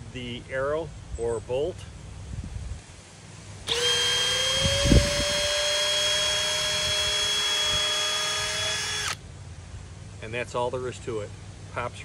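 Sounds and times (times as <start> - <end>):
cordless drill whining: 3.7 - 9.2.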